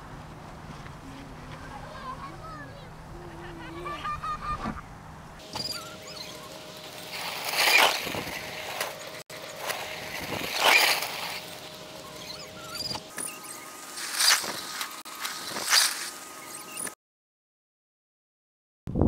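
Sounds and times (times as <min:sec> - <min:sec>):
sled scraping over snow: 0:05.4 - 0:13.0, 0:13.8 - 0:16.7.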